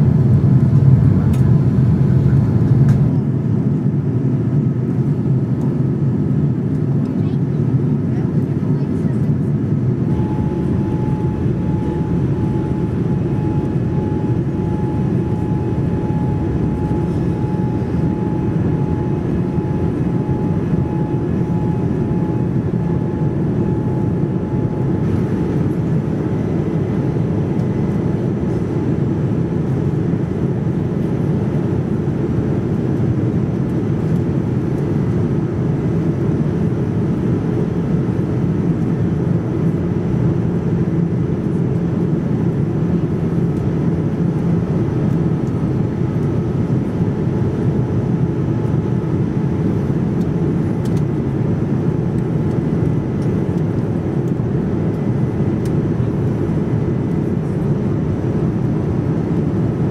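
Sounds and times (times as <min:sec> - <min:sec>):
airplane cabin airflow: 0:00.0 - 0:59.9
jet engine hum: 0:00.0 - 0:59.9
faint high steady tone: 0:10.1 - 0:25.0.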